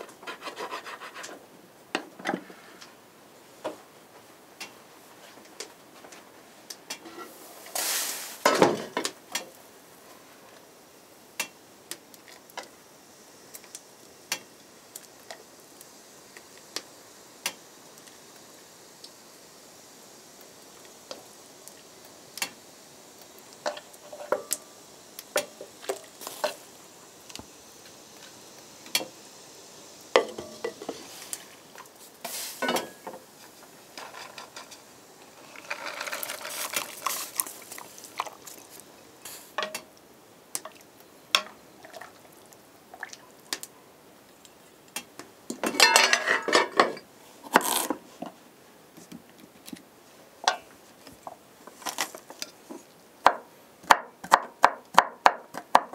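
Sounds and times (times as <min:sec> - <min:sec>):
pot and lid clinking: 0:30.2 - 0:31.0, 0:45.6 - 0:47.0
clatter and scraping: 0:34.0 - 0:34.8, 0:35.4 - 0:38.3.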